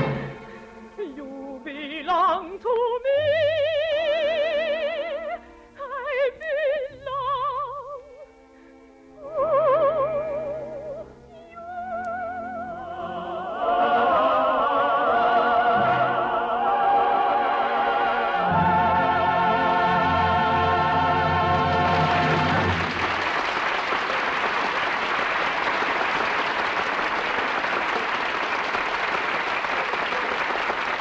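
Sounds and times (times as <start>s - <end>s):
dramatic orchestral music: 0.0s - 1.0s, 13.1s - 23.2s.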